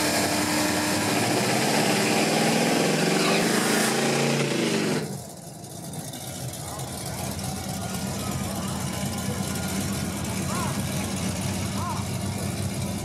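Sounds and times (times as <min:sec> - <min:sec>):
car engine revving loudly: 0:00.0 - 0:05.2.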